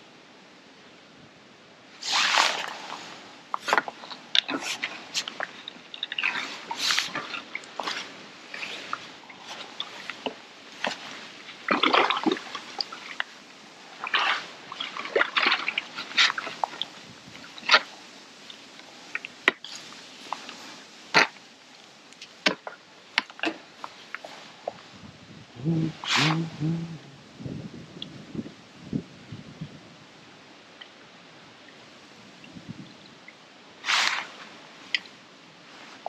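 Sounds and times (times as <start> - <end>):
water splashing and sloshing: 2.0 - 25.1, 30.6 - 36.0.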